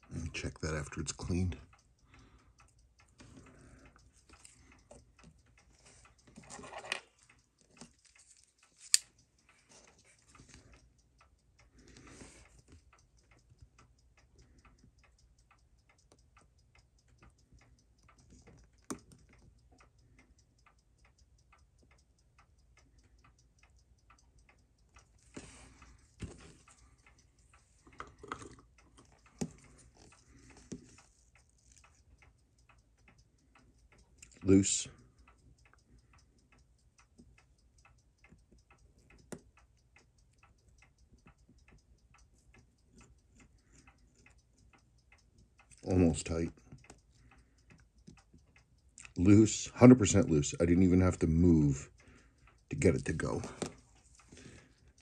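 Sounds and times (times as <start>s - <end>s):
fast watch ticking: 0.0s - 55.0s
metal tools clicking and tapping: 6.2s - 9.2s.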